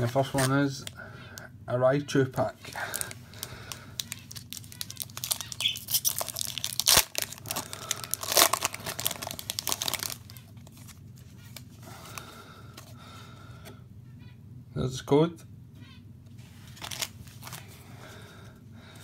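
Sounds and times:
foil wrapper crinkling: 0.0s - 0.9s, 2.6s - 12.4s, 16.6s - 18.2s
foil tearing: 2.8s - 12.2s, 16.7s - 17.6s.

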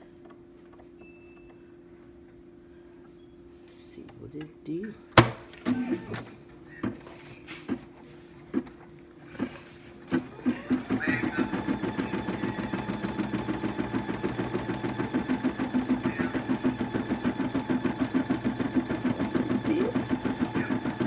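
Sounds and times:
embroidery machine stitching: 10.0s - 21.0s.

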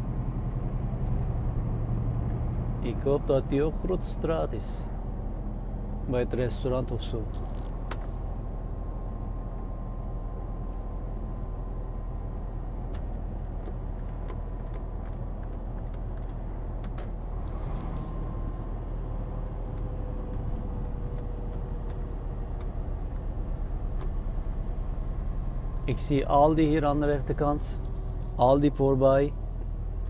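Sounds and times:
truck engine and road rumble: 0.0s - 30.0s
small clicks and rattles: 7.2s - 8.2s, 12.8s - 18.2s, 27.8s - 28.5s.

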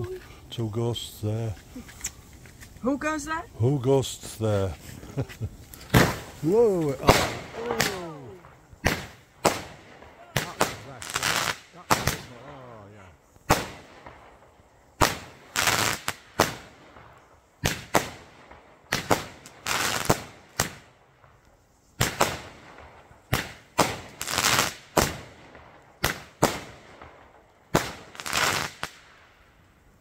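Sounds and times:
firework crackling: 0.0s - 29.6s
firework bangs: 4.4s - 12.4s, 13.4s - 21.4s, 22.0s - 29.3s.

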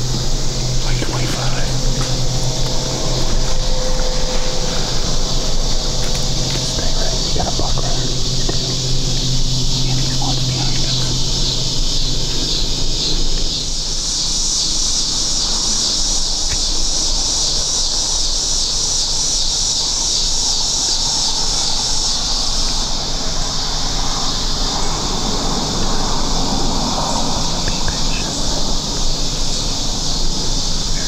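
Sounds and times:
low outdoor rumble: 0.0s - 18.2s
insects droning: 0.0s - 31.0s.

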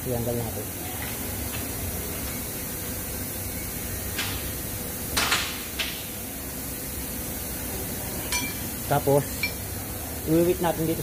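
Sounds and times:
workshop background hum: 0.0s - 11.0s.

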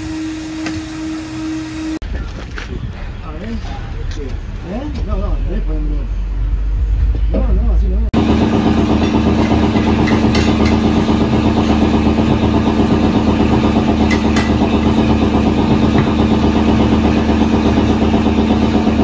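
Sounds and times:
motor humming: 0.0s - 2.0s, 8.2s - 19.0s.

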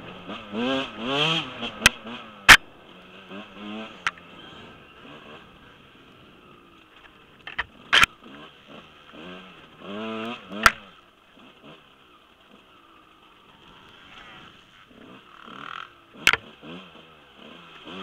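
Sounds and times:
dirt bike engine revving: 0.0s - 18.0s.

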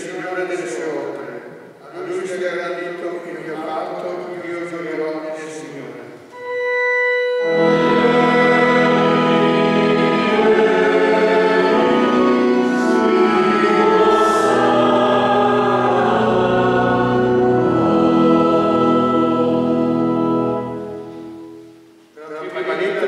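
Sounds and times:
instrumental accompaniment: 6.3s - 22.2s
church choir singing: 6.4s - 21.6s.

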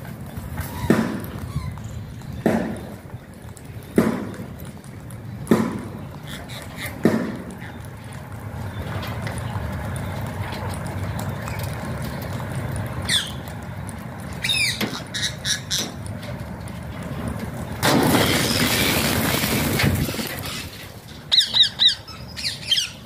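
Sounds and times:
parakeets squawking: 0.5s - 2.0s, 6.1s - 8.1s, 12.5s - 13.6s, 14.2s - 16.3s, 18.1s - 23.0s.

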